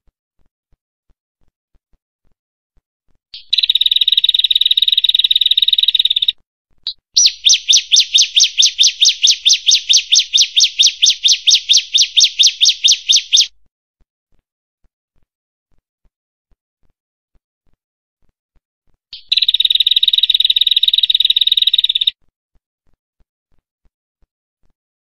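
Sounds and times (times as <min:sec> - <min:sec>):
small bird singing: 0:03.4 - 0:13.5, 0:19.1 - 0:22.1.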